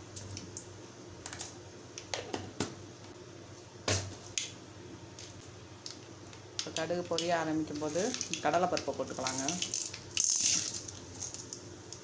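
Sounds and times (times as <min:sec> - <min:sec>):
seeds popping in hot oil: 0:05.1 - 0:12.0.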